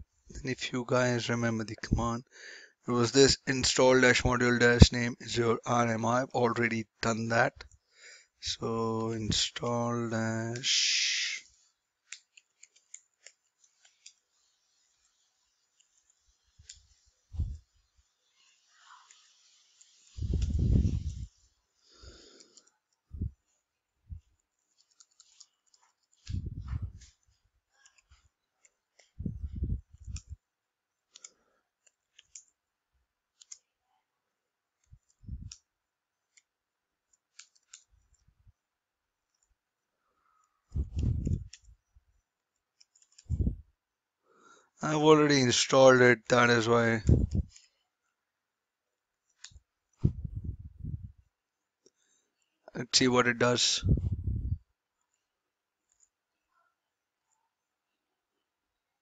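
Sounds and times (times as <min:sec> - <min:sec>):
computer keyboard keystrokes: 0:32.1 - 0:32.6.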